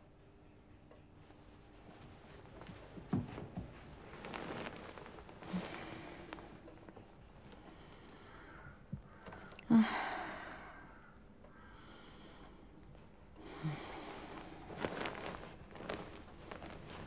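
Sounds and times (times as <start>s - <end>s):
rustling: 1.1s - 7.6s, 13.8s - 17.0s
heavy sighing breath: 5.4s - 6.7s, 7.6s - 12.7s, 13.4s - 14.7s.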